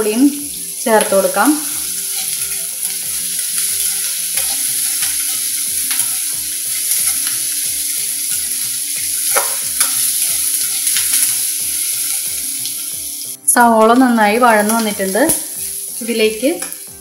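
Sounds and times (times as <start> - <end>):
onions sizzling in hot oil: 0.0 - 17.0
spatula scraping pan: 1.7 - 8.5.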